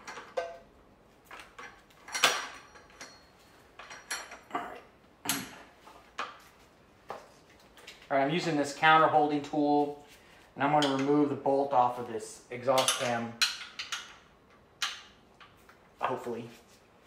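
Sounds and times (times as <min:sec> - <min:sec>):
steel tools clinking on metal: 0:02.1 - 0:04.5.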